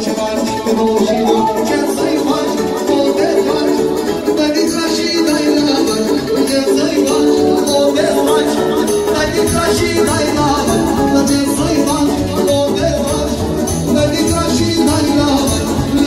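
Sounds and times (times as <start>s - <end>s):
accordion dance music: 0.0s - 16.0s.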